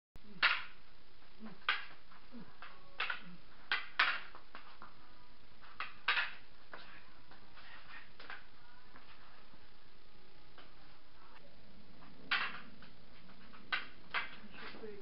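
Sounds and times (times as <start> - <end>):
sticks clacking together: 0.4 - 0.8, 1.5 - 2.0, 2.6 - 4.7, 5.7 - 7.0, 12.3 - 14.8.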